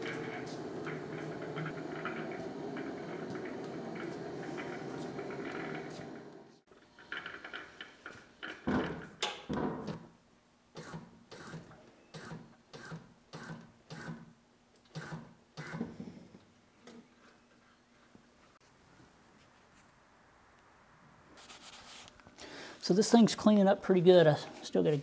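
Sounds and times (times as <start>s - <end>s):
solvent stream: 0.0s - 6.6s.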